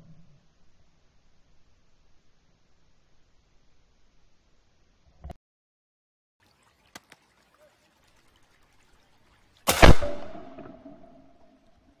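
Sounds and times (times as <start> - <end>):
faint clicks: 6.7 - 8.8
shotgun shot with echo: 9.7 - 11.0.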